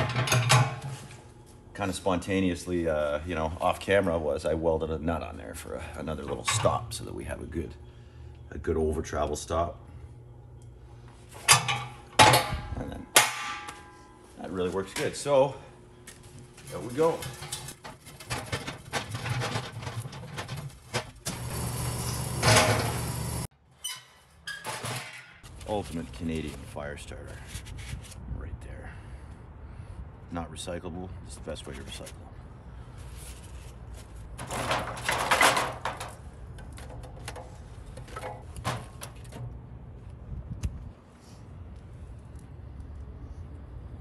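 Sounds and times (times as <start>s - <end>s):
rustling and clattering: 16.3s - 21.2s, 33.0s - 39.7s.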